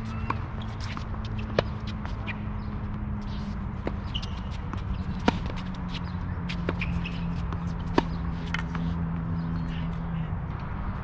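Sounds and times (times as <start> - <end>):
tennis racket hitting ball: 0.0 - 2.2, 3.3 - 9.0
tennis ball bouncing: 0.0 - 9.7.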